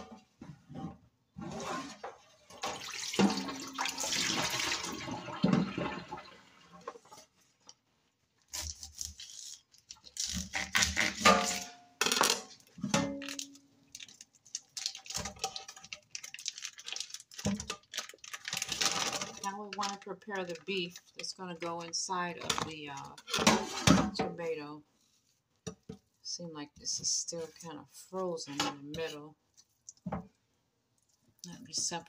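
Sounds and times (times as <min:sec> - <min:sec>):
tap water running into sink: 0:02.4 - 0:07.0
plastic package crinkling: 0:13.2 - 0:21.9.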